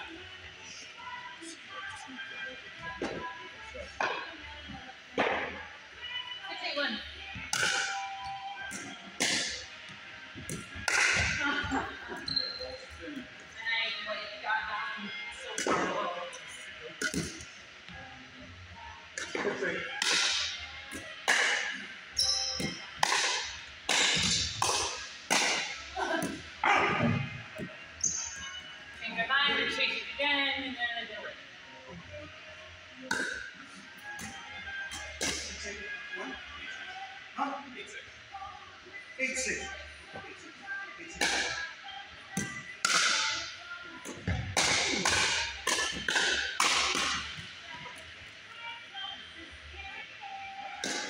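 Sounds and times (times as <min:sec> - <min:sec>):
paddles hitting plastic ball: 0:10.4 - 0:11.4, 0:42.4 - 0:43.3, 0:44.0 - 0:47.4
shoe squeak on hardwood floor: 0:12.2 - 0:12.8, 0:22.2 - 0:22.8.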